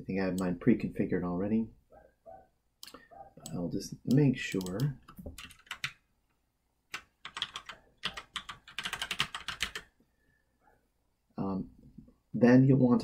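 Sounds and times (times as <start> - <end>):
typing on computer keyboard: 2.8 - 6.0, 6.9 - 9.9.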